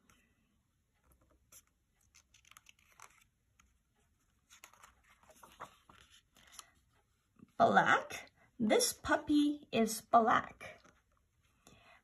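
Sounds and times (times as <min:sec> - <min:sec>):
book pages turning: 0:00.9 - 0:07.0
paper rustling: 0:01.0 - 0:06.8.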